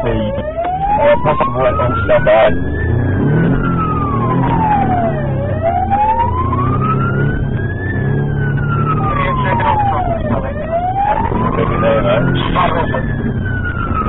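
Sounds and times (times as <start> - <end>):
police siren wailing: 0.0 - 14.0
vehicle rumble: 0.0 - 14.0.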